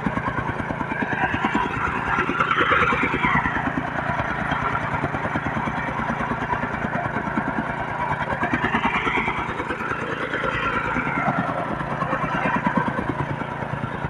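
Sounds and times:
tamping rammer engine running: 0:00.0 - 0:14.0.

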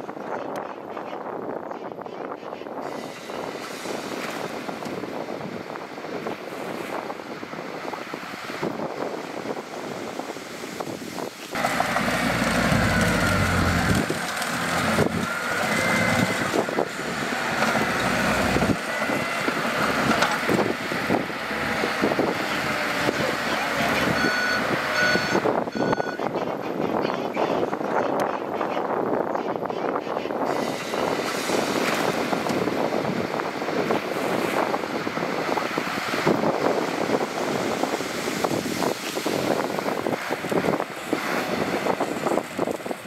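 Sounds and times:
diesel machinery engine: 0:11.5 - 0:26.3, 0:30.5 - 0:43.0.

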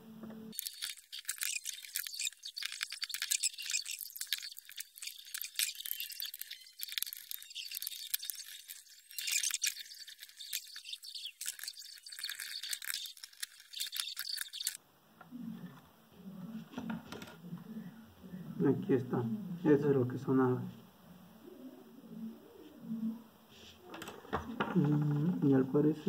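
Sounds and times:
screwdriver scraping plastic casing: 0:00.6 - 0:14.8.

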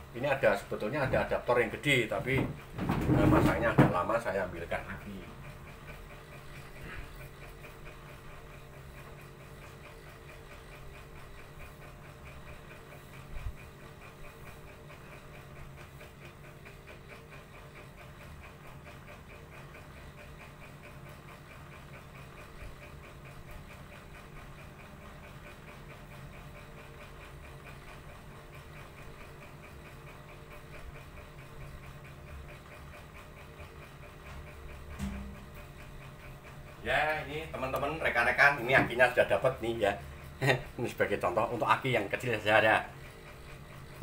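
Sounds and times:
machine humming: 0:34.4 - 0:44.0.

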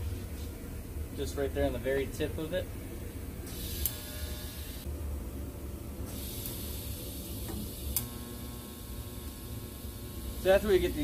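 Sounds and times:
welding arc buzzing: 0:03.5 - 0:04.9, 0:06.0 - 0:11.0.

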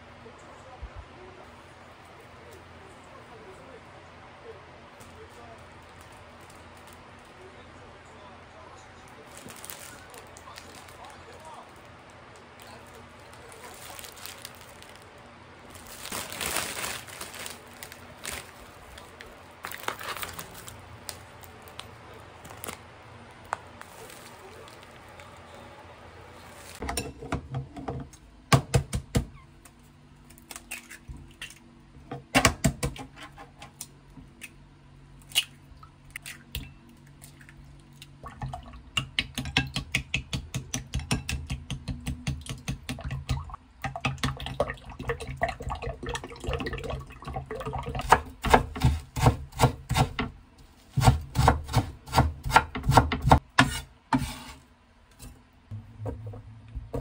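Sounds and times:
knife chopping on wooden board: 0:48.0 - 0:50.3, 0:51.0 - 0:54.4.

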